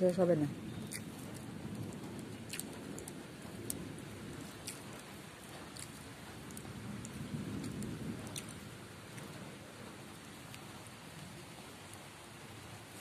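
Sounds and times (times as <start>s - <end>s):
steady rain falling: 0.0s - 13.0s.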